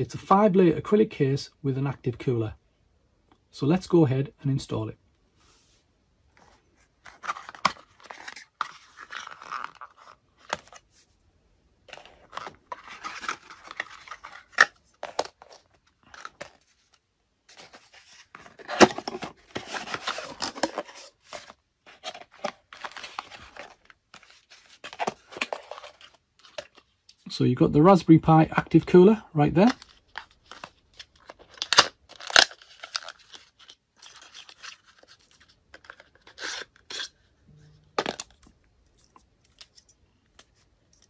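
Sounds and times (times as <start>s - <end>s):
cardboard boxes rustling and scraping: 6.4s - 11.1s, 17.5s - 26.6s.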